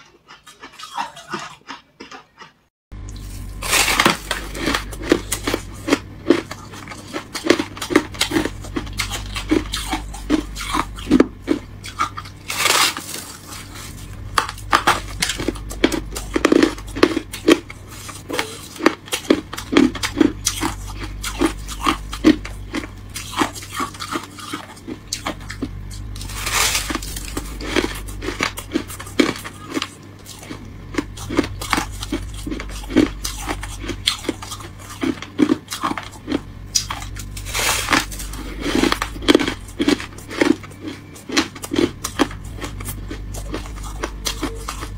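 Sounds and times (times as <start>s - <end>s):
frost being bitten and chewed: 0.0s - 44.9s.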